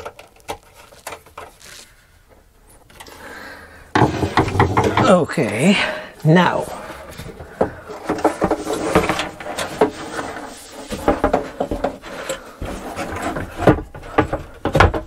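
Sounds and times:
wood rubbing: 0.0 - 15.0
wooden knocks: 3.9 - 5.4, 10.9 - 15.0.

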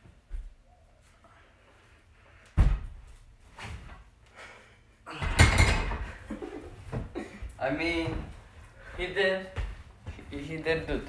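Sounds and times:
barbell clanking on metal uprights: 5.2 - 6.2.

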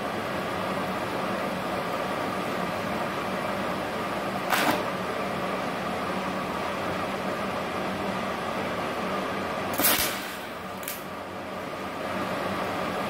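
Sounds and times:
welder hiss and hum: 9.7 - 11.1
welding arc crackle: 9.7 - 11.1.

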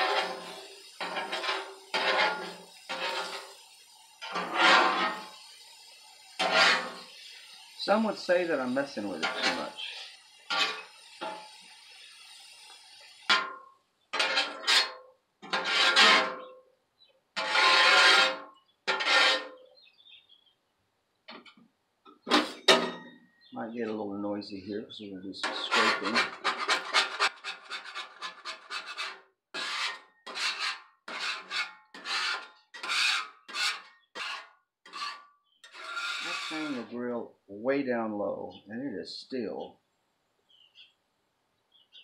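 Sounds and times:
metal spatula scraping griddle: 0.0 - 16.6, 17.4 - 19.8, 22.2 - 23.2, 25.4 - 37.0.

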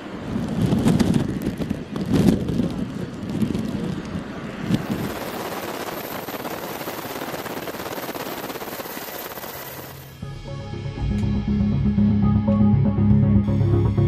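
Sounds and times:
wind buffeting microphone: 0.0 - 9.7
steady rushing noise: 0.0 - 10.3.

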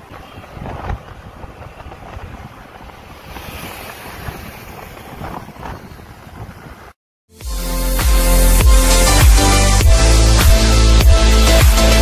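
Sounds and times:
wind rushing over microphone: 0.0 - 7.0.

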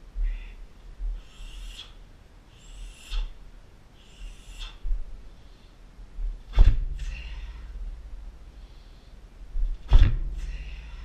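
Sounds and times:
man breathing forcefully: 0.0 - 11.0
heavy thud with low ring: 6.5 - 8.2, 9.6 - 11.0.

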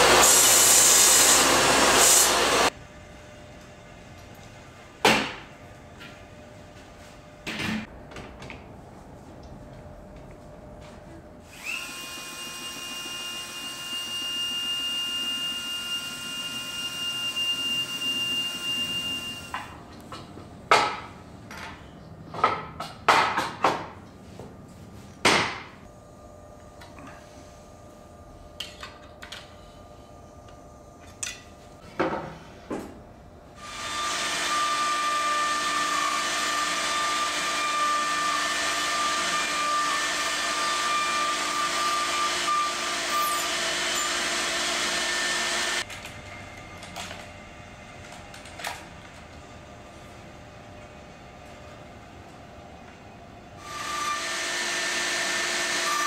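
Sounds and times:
router cutting wood: 0.0 - 2.7, 11.5 - 19.5, 33.6 - 45.8, 53.6 - 56.0
power tool whining: 11.5 - 19.6, 33.6 - 45.9, 53.6 - 56.0.

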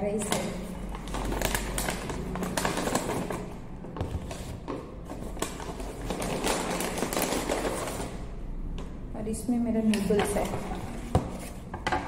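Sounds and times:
paper bag rustling and crinkling: 0.1 - 8.4.

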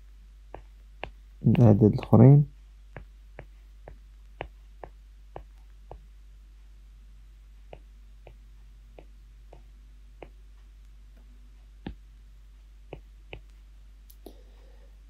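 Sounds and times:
steady low hum: 0.0 - 15.0
faint sharp clicks: 14.0 - 14.4.

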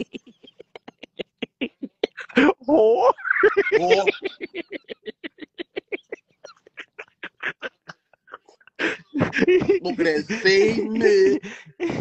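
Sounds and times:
person laughing hard: 0.0 - 12.0.

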